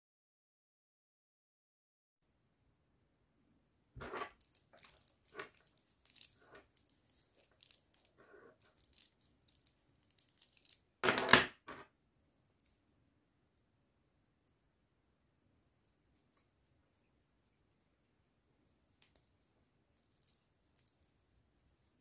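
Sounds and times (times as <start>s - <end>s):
cloth rustling: 4.0s - 10.8s, 15.8s - 22.0s
beads clicking and rattling: 4.0s - 11.0s, 20.0s - 21.1s.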